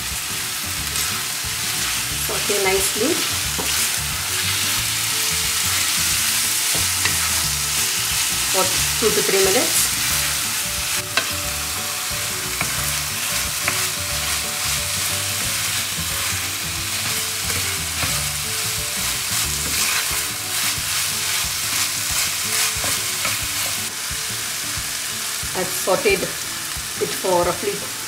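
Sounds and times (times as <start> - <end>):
food sizzling in hot oil: 0.0 - 28.0
spatula tapping pan: 12.1 - 23.8.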